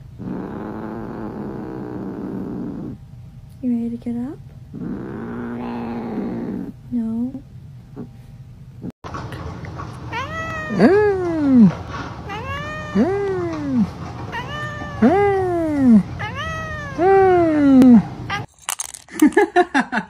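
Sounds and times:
cat meowing: 10.1 - 18.5.

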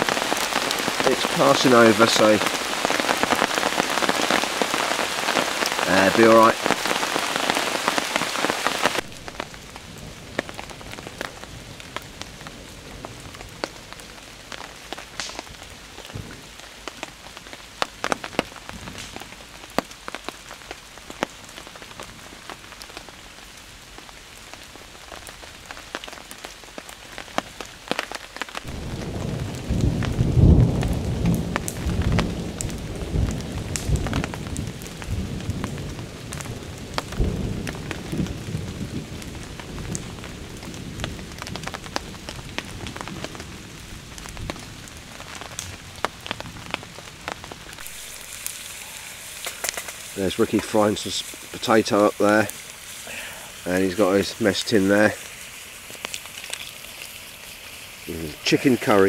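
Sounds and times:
heavy rain on leaves: 0.0 - 59.0
low rumble of thunder: 28.7 - 47.7.

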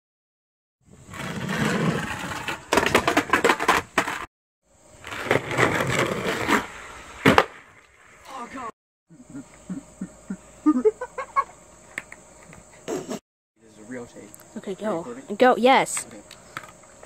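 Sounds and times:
skateboard wheels rolling on concrete: 0.8 - 8.7
skateboard clack: 1.7 - 4.2.

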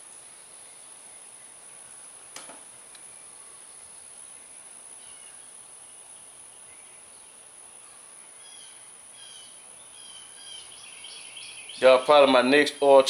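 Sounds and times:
steady high-pitched hiss: 0.0 - 13.0
faint bird chirps: 3.0 - 12.0.

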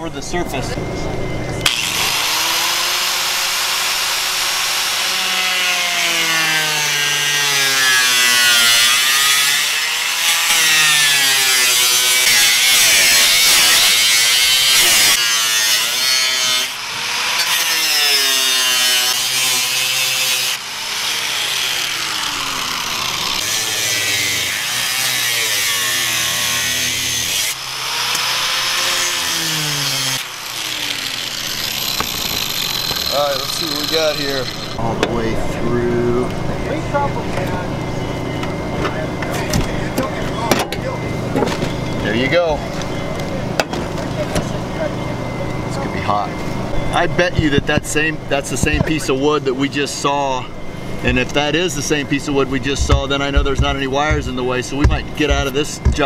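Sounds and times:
angle grinder cutting sheet metal: 1.6 - 34.9, 51.0 - 56.0.

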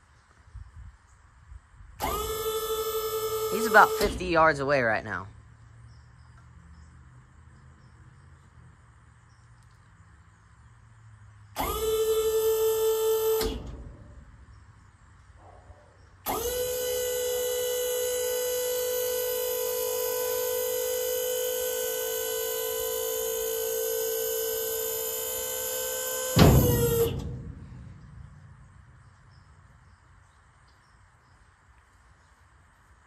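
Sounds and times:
hydraulic pump motor whining: 2.0 - 4.6, 11.6 - 14.2, 16.2 - 29.2.

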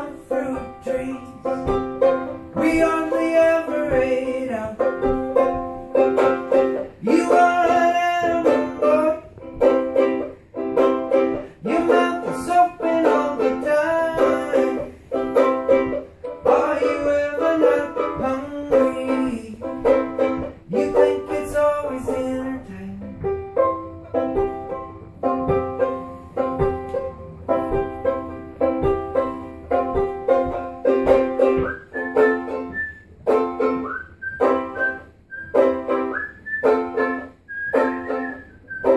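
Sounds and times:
man singing: 0.0 - 5.6, 6.2 - 9.8, 11.4 - 15.6, 16.4 - 23.2
banjo-ukulele strumming chords: 0.0 - 38.9.

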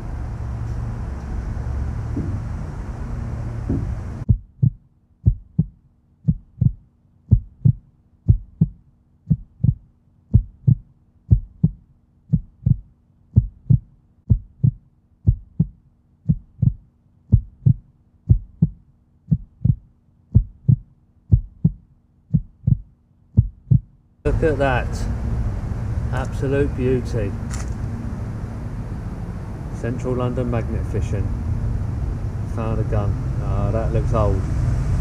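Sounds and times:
faint steady hum: 0.0 - 35.0
heartbeat thumps: 2.1 - 2.5, 3.6 - 24.0.

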